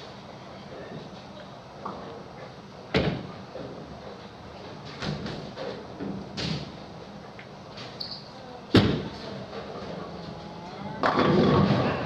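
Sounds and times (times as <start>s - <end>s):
bowling ball rolling rumble: 9.1s - 12.0s
bowling alley knocks and clatter: 11.0s - 12.0s
bowling ball thud on lane: 11.0s - 12.0s.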